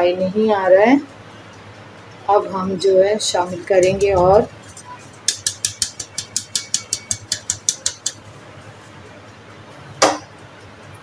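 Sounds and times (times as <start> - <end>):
sieve tapping over glass bowl: 5.3 - 8.2.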